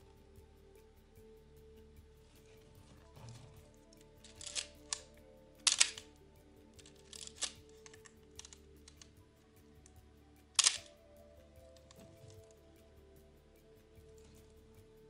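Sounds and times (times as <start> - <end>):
soft background music: 0.0 - 15.0
ratcheting clicks of film advance: 3.9 - 6.2, 6.8 - 9.2, 10.6 - 11.0.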